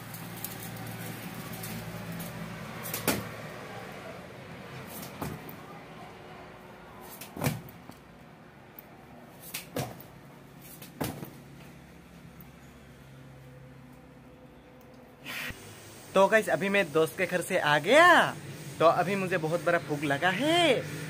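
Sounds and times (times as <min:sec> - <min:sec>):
knocks of push-ups on concrete: 0:02.9 - 0:03.3, 0:04.9 - 0:05.5, 0:07.1 - 0:08.0, 0:09.5 - 0:10.1, 0:10.7 - 0:11.4.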